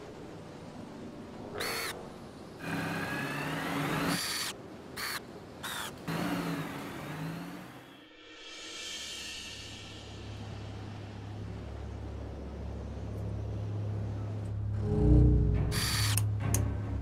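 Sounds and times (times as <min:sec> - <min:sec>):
low hum: 0:06.1 - 0:17.0.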